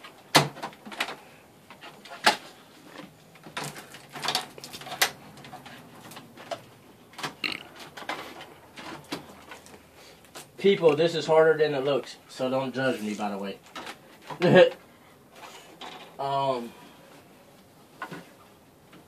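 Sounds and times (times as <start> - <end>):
hands handling cables and plugs: 0.6 - 10.5.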